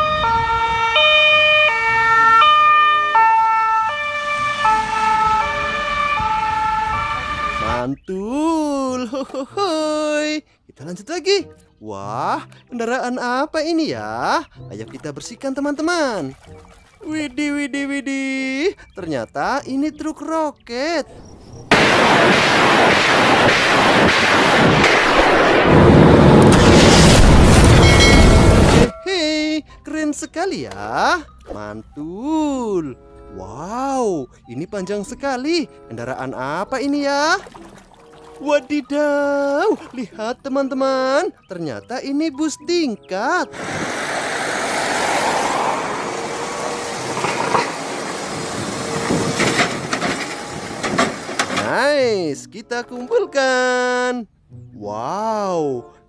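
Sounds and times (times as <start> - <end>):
two-tone ambulance siren: 0.0 - 7.9, 27.8 - 29.1
rockets launching roar: 21.7 - 28.9, 43.6 - 51.4.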